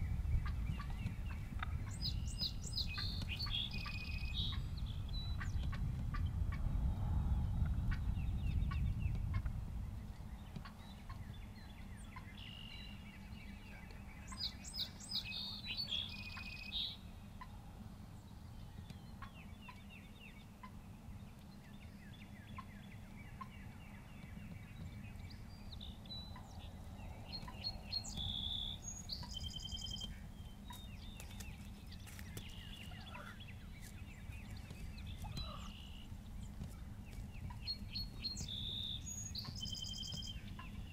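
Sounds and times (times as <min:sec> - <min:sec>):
steady low rumble: 0:00.0 - 0:40.9
turkeys gobbling: 0:32.8 - 0:33.4, 0:35.2 - 0:35.8.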